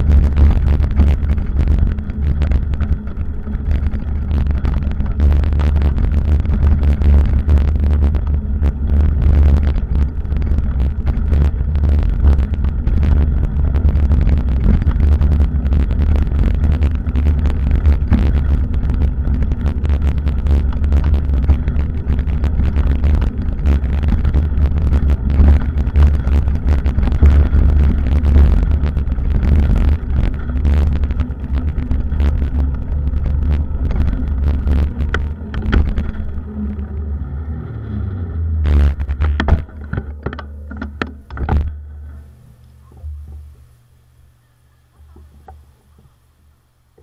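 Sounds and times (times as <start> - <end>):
wind buffeting microphone: 0.0 - 37.2.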